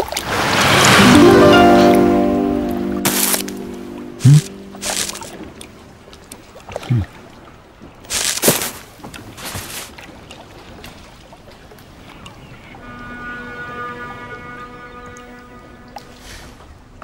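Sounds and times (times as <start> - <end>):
sound dropping in pitch: 0.6 - 5.8.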